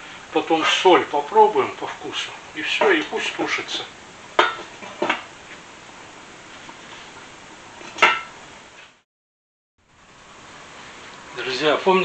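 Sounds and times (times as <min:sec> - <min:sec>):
faint background hiss: 0:00.0 - 0:09.0, 0:09.8 - 0:12.0.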